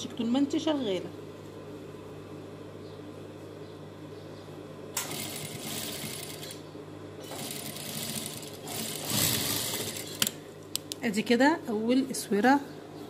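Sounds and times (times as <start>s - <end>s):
sewing machine stitching: 5.0s - 6.6s, 7.2s - 10.4s
sewing machine clicks: 7.2s - 10.4s.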